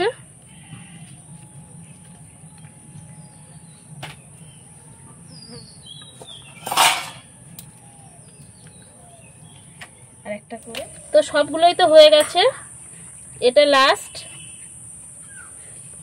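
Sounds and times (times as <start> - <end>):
low hum: 0.0 - 13.4
faint birds chirping: 0.0 - 16.0
steady high hiss: 10.2 - 16.0.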